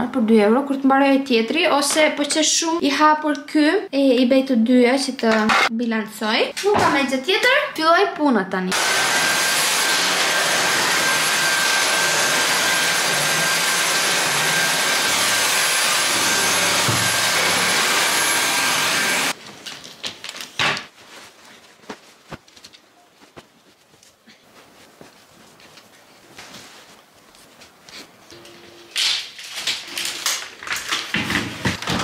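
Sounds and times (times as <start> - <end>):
stick vacuum cleaner running: 8.7 - 19.4.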